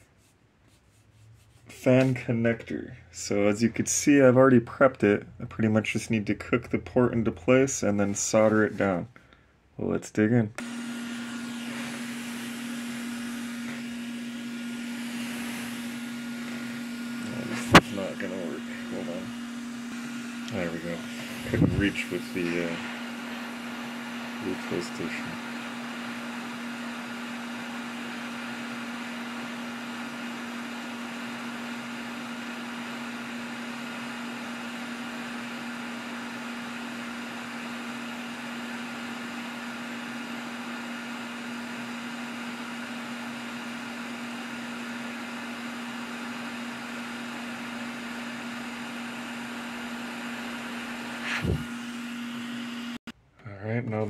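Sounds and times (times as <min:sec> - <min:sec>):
hot-air station hissing: 0:10.6 - 0:53.0.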